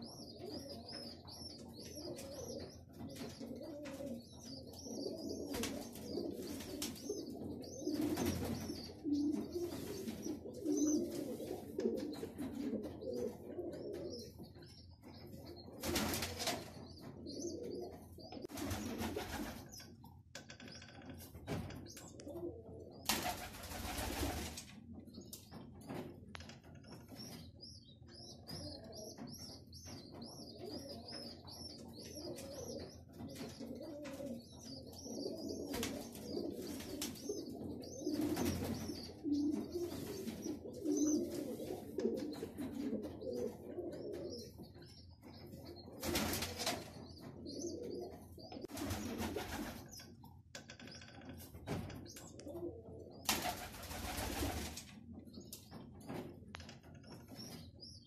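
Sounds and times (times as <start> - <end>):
pigeons cooing: 0.0 - 19.8, 21.8 - 24.5, 27.1 - 50.1, 52.0 - 56.2.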